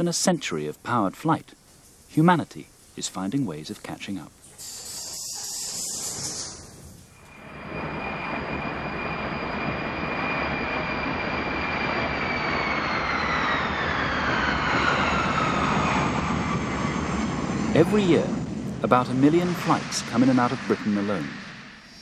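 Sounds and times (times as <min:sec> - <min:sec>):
high turbine whine: 0:04.6 - 0:22.0
jet engine rush: 0:04.6 - 0:22.0.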